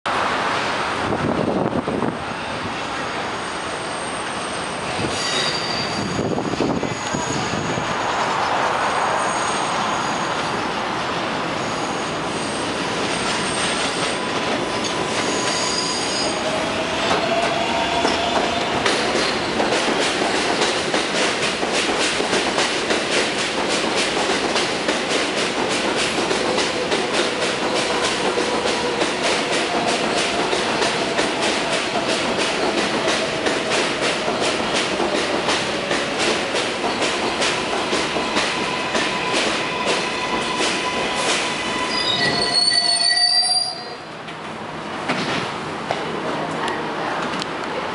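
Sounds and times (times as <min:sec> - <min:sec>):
train wheels squealing: 0:03.1 - 0:08.5, 0:09.1 - 0:10.7, 0:11.5 - 0:19.7, 0:38.2 - 0:44.1
train wheels clattering over rail joints: 0:17.0 - 0:42.2.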